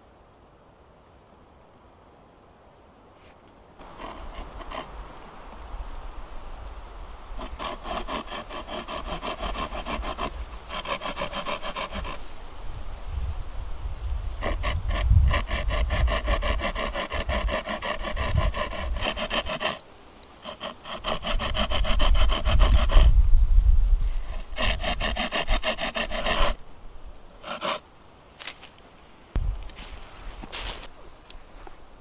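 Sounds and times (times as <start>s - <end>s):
hand saw cutting wood: 3.8s - 4.9s, 7.4s - 12.3s, 14.4s - 19.8s, 20.4s - 23.1s, 24.3s - 26.6s, 27.4s - 27.8s.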